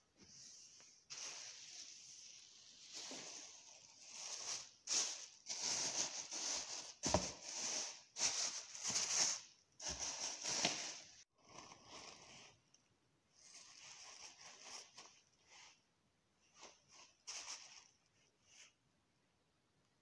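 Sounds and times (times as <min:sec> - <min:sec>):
cover rustling and crinkling: 0:02.9 - 0:11.2.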